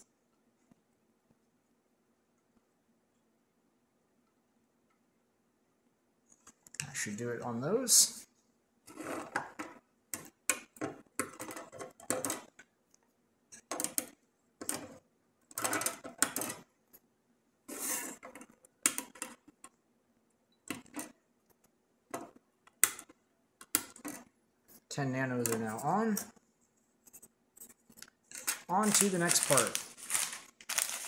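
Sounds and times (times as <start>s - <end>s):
scraping rustles on circuit board: 8.9s - 9.8s, 17.7s - 19.5s.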